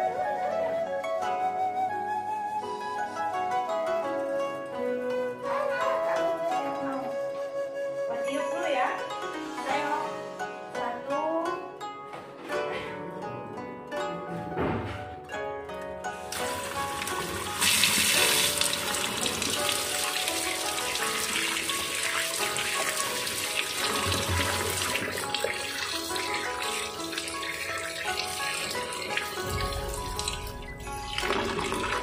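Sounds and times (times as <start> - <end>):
water splashing over vegetables: 16.4 - 32.0
tap running into metal bowl: 22.1 - 30.4.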